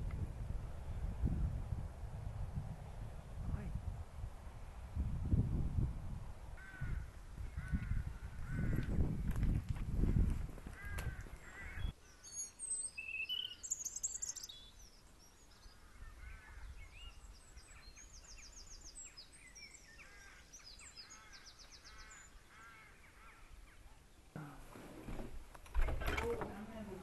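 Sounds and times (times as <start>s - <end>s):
wind gust on microphone: 0.0s - 11.9s
low wind rumble: 0.0s - 12.0s
small birds chirping and trilling: 10.7s - 24.4s.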